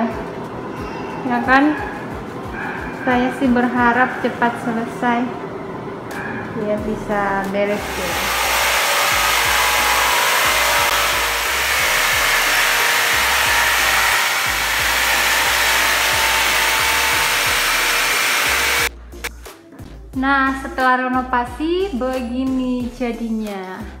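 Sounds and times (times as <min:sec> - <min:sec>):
power tool cutting wood: 0:07.7 - 0:18.9.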